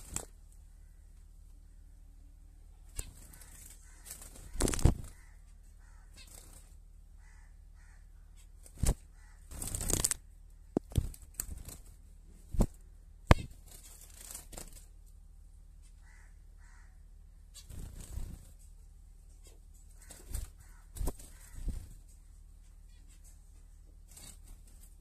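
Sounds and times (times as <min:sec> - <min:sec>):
birds' wings flapping: 0:00.0 - 0:00.4, 0:03.0 - 0:05.3, 0:06.2 - 0:06.8, 0:08.6 - 0:10.2, 0:10.8 - 0:15.0, 0:17.6 - 0:18.7, 0:19.9 - 0:22.1
soft bird calls: 0:00.0 - 0:15.1, 0:15.7 - 0:25.0
sharp taps and knocks: 0:10.7 - 0:11.1.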